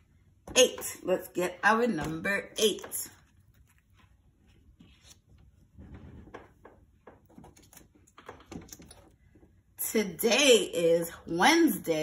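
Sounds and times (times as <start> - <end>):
paper card rustling: 3.1 - 6.7.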